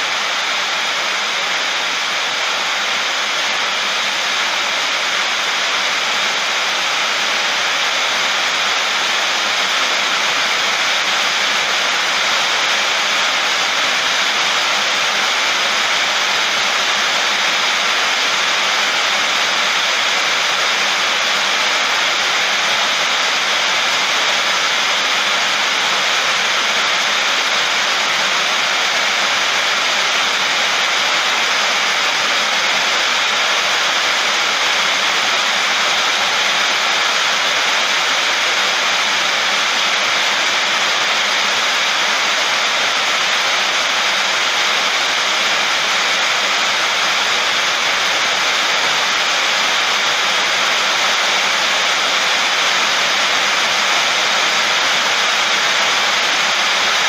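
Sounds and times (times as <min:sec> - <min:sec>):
heavy rain on a sheet roof: 0:00.0 - 0:57.0.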